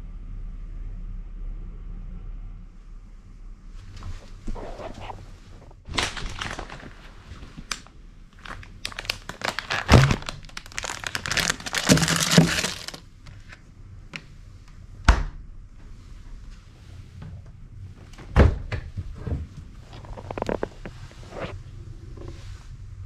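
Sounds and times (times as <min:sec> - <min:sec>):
crinkling and rustling: 0:03.7 - 0:14.3, 0:16.4 - 0:22.6.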